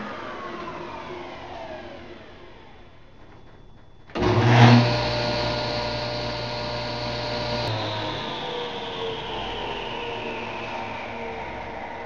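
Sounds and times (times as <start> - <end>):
table saw motor humming: 3.8 - 11.1.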